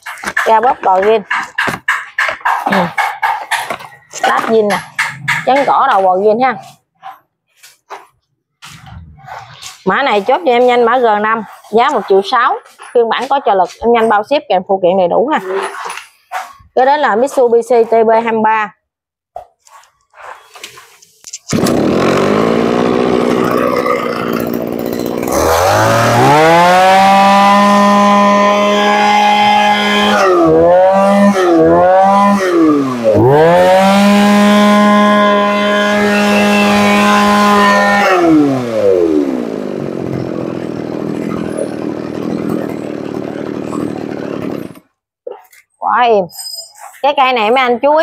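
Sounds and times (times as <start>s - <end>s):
brush cutter engine revving: 21.5s - 44.8s.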